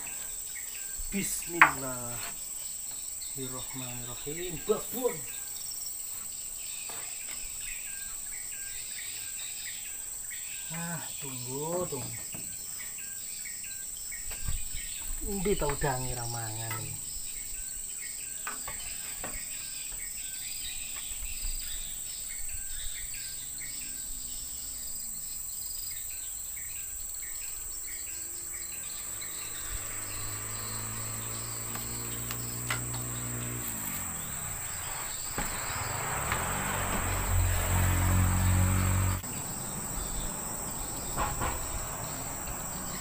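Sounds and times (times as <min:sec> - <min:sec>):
insects droning: 0:00.0 - 0:43.0.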